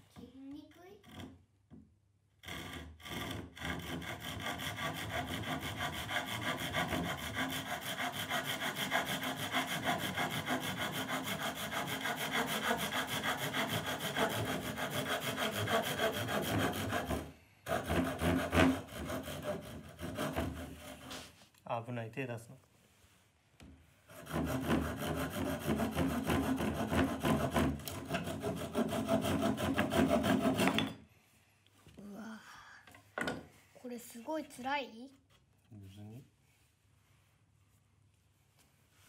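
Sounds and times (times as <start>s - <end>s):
hand saw cutting plywood: 1.0s - 1.5s, 2.4s - 21.4s, 24.1s - 31.0s.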